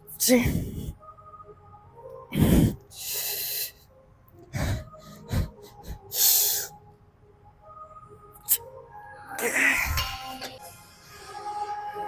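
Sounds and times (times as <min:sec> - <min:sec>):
man breathing hard: 0:04.5 - 0:06.8.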